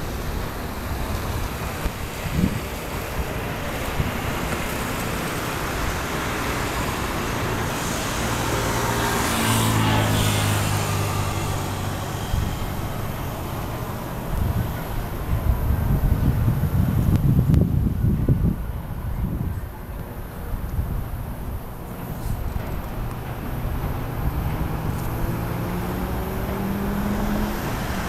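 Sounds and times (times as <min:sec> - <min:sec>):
city traffic noise: 0:00.0 - 0:28.0
motor vehicle passing: 0:01.2 - 0:16.9, 0:21.7 - 0:28.0.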